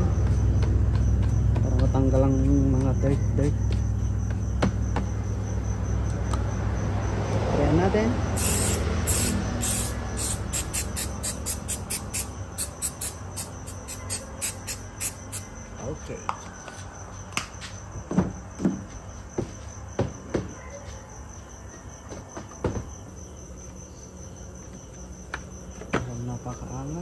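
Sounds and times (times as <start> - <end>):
cricket trilling: 0.0 - 27.0
aerosol spray hissing: 8.4 - 15.5.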